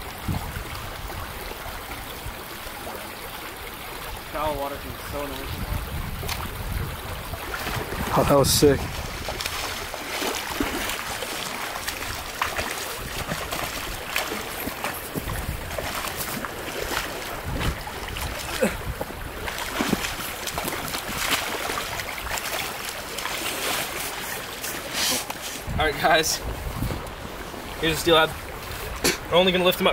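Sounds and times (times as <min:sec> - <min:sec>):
wind on microphone: 0:00.0 - 0:02.5, 0:04.2 - 0:11.2, 0:12.0 - 0:21.3, 0:25.6 - 0:27.7
creek water flowing: 0:00.0 - 0:29.9.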